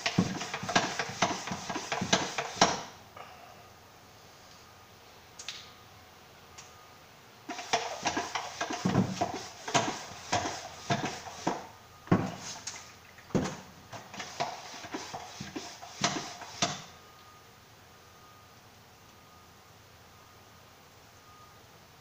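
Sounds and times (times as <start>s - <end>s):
pump sprayer spurts: 0.0s - 2.9s, 7.5s - 16.9s.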